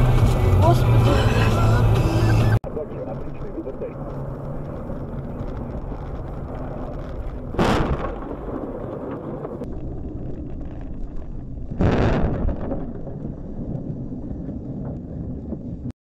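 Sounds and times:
car driving rumble inside cabin: 0.0s - 7.6s
loud booming bursts: 4.0s - 15.9s.

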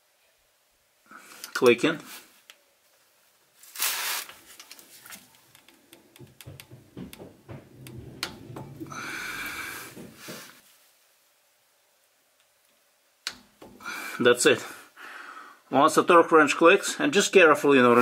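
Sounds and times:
light metallic clicks and knocks: 4.6s - 10.5s.

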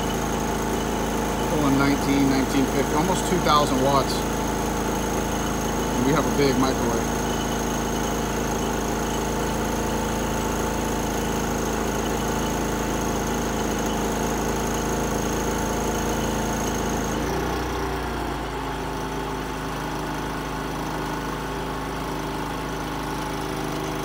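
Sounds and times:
generator running: 0.0s - 24.0s.

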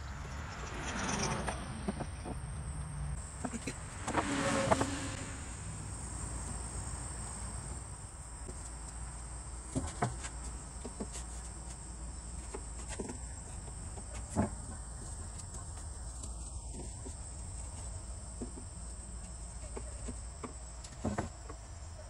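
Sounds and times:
low hum: 0.0s - 8.6s.

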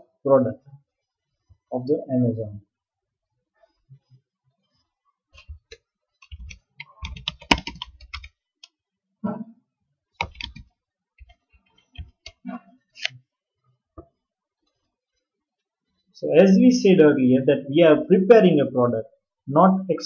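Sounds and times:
typing on computer keyboard: 5.4s - 8.4s, 10.2s - 12.4s.

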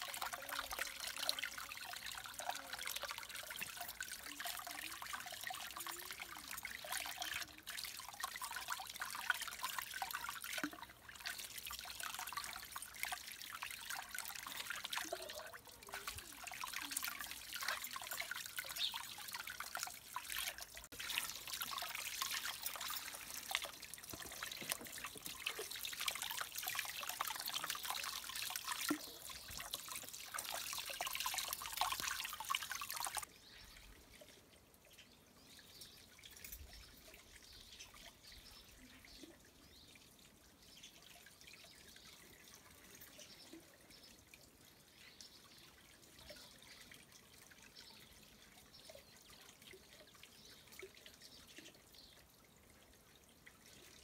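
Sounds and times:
water trickling from hose: 0.0s - 54.0s
hands washing vegetables in water: 9.0s - 33.3s.

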